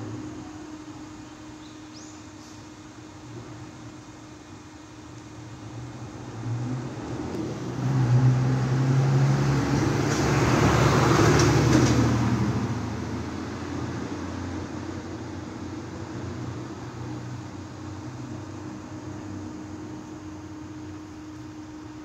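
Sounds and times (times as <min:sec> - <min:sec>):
vehicle driving past: 0:05.7 - 0:19.4.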